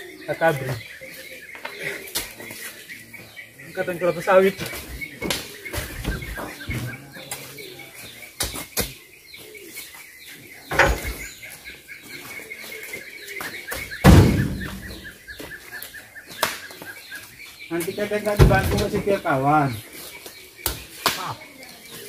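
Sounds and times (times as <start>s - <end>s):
steady chirping: 0.0s - 21.4s
fruit bunches thudding into truck bed: 14.0s - 15.1s, 18.3s - 19.2s.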